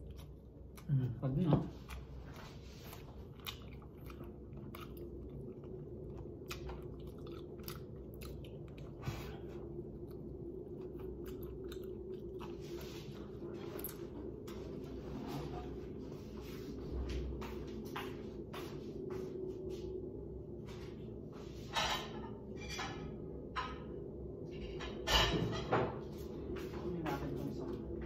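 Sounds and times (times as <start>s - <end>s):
person chewing and biting: 0.0s - 0.9s, 1.7s - 14.1s
low hum: 0.0s - 28.0s.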